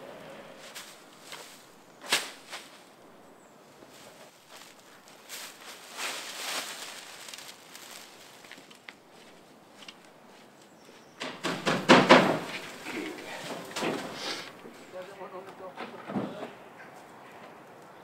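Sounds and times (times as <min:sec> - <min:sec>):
dry reed bundles rustling: 0:00.3 - 0:03.0, 0:03.6 - 0:10.5, 0:12.2 - 0:16.4
knocks: 0:11.2 - 0:12.8.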